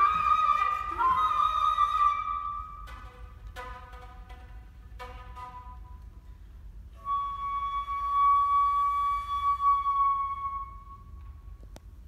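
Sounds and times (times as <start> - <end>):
flute holding long note: 0.0 - 3.0, 6.9 - 11.6.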